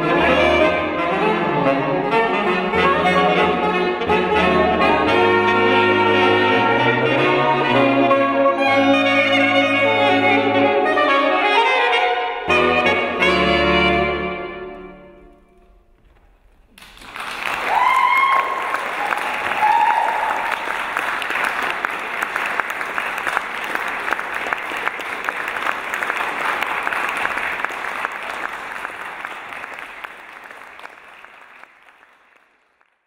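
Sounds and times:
audience applauding: 0:16.7 - 0:33.0
short cheers: 0:17.6 - 0:20.8.

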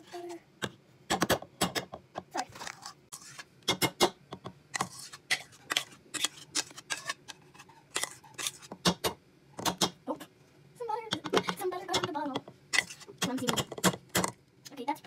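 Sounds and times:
metal spoon scraping bowl: 0:02.5 - 0:03.5, 0:04.7 - 0:08.8, 0:12.7 - 0:14.0.

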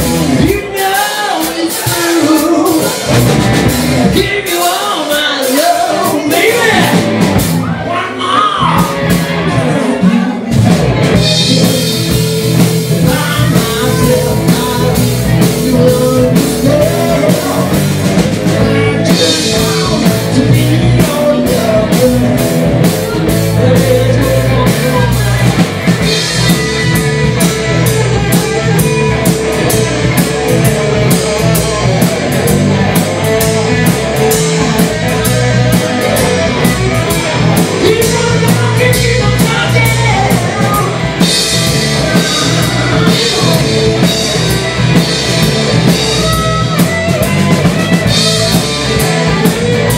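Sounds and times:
drum kit: 0:00.0 - 0:07.9, 0:08.6 - 0:49.9
electric guitar: 0:00.0 - 0:49.9
live rock band playing: 0:00.0 - 0:49.9.

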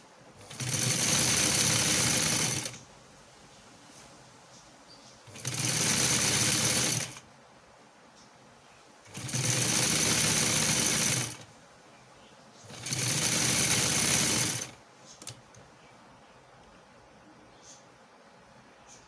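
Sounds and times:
sewing machine stitching: 0:00.4 - 0:02.8, 0:05.3 - 0:07.2, 0:09.1 - 0:11.5, 0:12.6 - 0:15.4.

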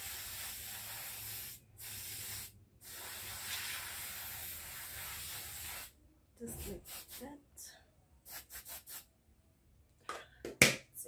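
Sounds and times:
aerosol spray hissing: 0:00.0 - 0:05.9, 0:06.6 - 0:07.2, 0:08.3 - 0:09.0.

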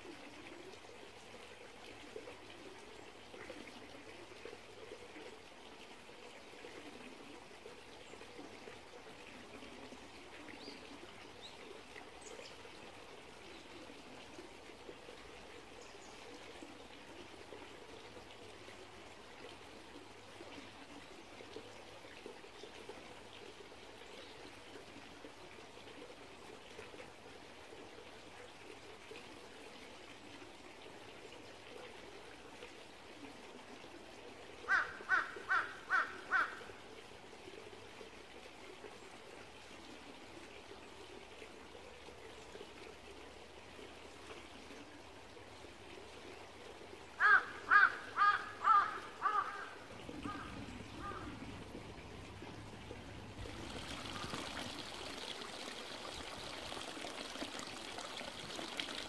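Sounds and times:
stream trickling: 0:00.0 - 0:59.0
bird calling: 0:47.2 - 0:51.5.

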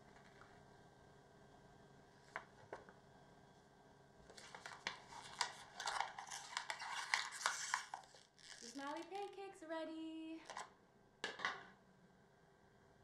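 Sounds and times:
dense crinkling and crackling: 0:04.3 - 0:09.6.

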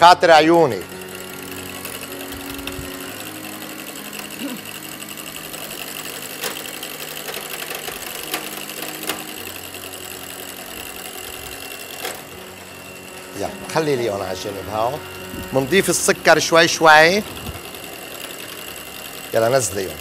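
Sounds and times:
stand mixer whirring: 0:00.0 - 0:20.0.

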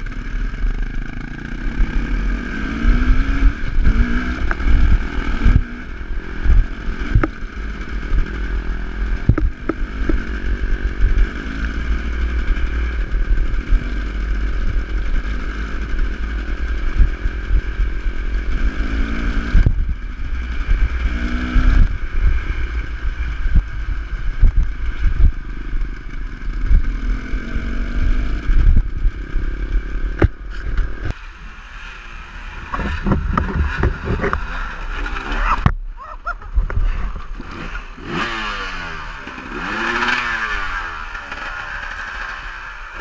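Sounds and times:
dirt bike engine revving: 0:00.0 - 0:43.0
knocks and rattles from bumps: 0:32.7 - 0:34.5.

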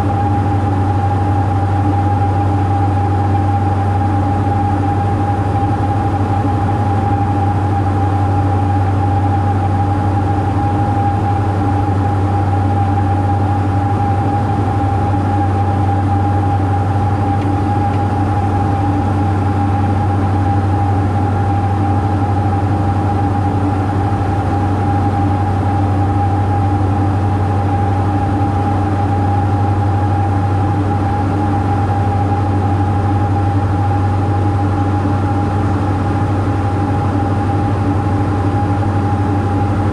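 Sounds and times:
aircraft engines and propellers droning: 0:00.0 - 0:39.9.

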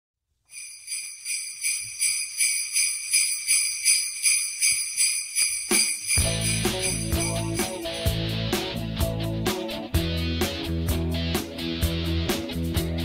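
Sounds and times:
sleigh bells shaken: 0:00.5 - 0:08.7
band with bass: 0:06.2 - 0:13.0.

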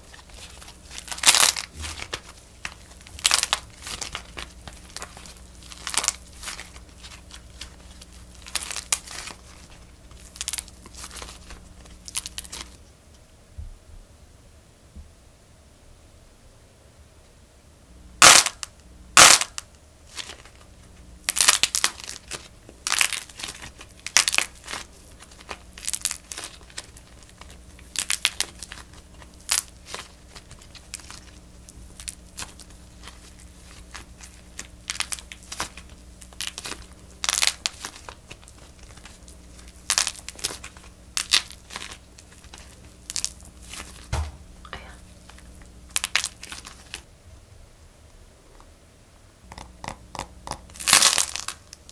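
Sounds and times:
coated shell cracking: 0:00.0 - 0:12.8, 0:21.3 - 0:47.1, 0:49.5 - 0:51.9
crinkly crackling and tearing: 0:00.0 - 0:12.8, 0:18.2 - 0:47.1, 0:50.5 - 0:51.9.

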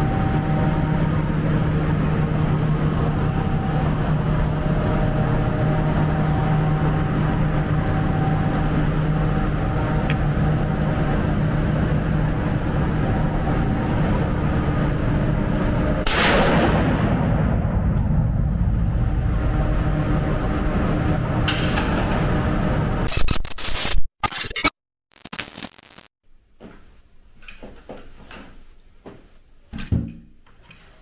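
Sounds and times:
low mechanical hum: 0:00.0 - 0:23.9, 0:26.2 - 0:31.0
loud burst of noise: 0:25.1 - 0:26.1.

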